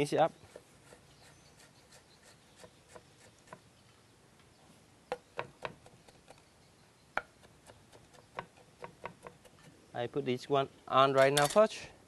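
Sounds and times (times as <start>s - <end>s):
cleaver chopping on wooden board: 5.1s - 5.9s, 7.2s - 9.6s.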